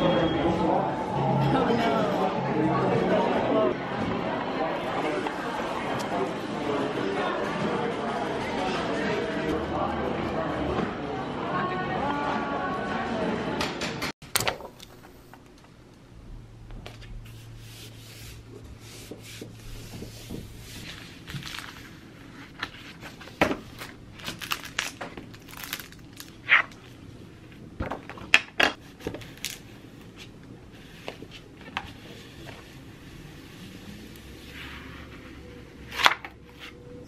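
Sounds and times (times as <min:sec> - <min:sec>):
paper and laminate rustling: 0:16.8 - 0:27.6.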